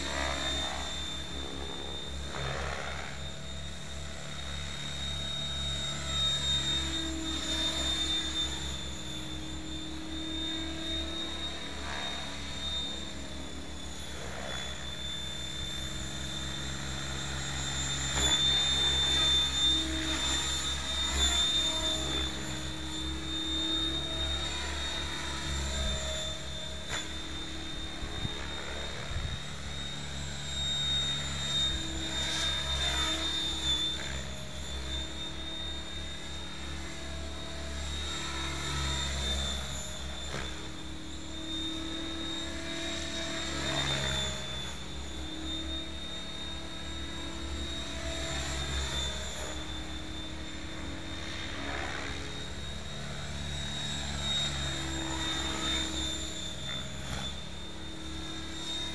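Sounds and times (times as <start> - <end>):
rc helicopter whine: 0.0 - 58.9
rotor blades rushing: 0.0 - 58.9.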